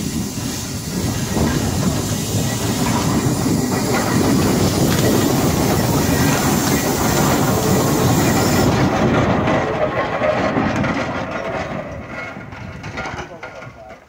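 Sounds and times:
steam hiss: 0.0s - 9.5s
fast mechanical clatter: 0.0s - 14.0s.

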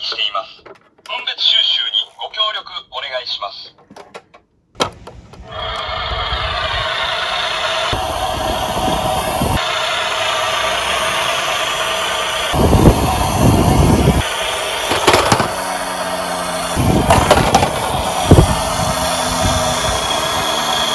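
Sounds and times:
toy truck electronic engine sound: 5.4s - 20.9s
plastic wheels rumbling on wood: 12.5s - 20.9s
toy truck knocking on board: 14.9s - 15.5s, 17.1s - 17.8s.

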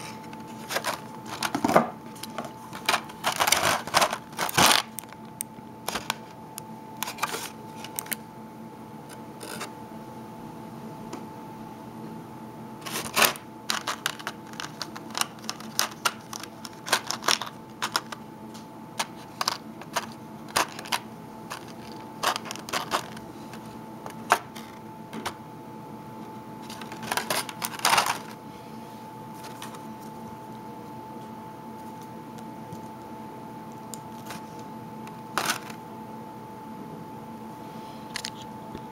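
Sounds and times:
plastic tray crackling: 0.6s - 1.6s, 2.8s - 5.2s, 12.8s - 18.2s, 19.0s - 23.2s, 26.7s - 28.4s, 35.4s - 35.8s.

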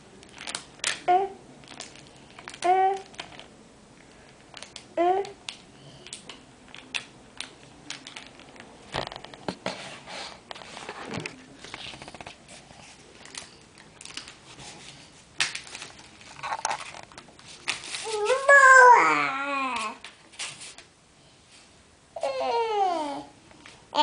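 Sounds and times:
toddler crying: 18.1s - 20.0s.

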